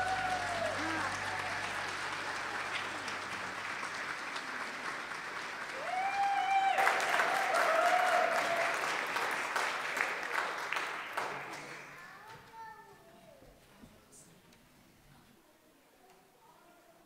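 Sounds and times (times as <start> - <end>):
crowd applauding: 0.0 - 12.2.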